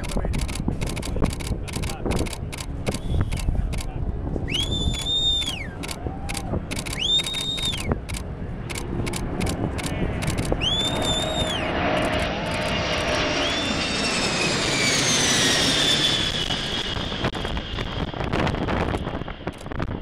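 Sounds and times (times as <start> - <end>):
high engine whine: 0.0 - 20.0
jet aircraft roar overhead: 0.0 - 20.0.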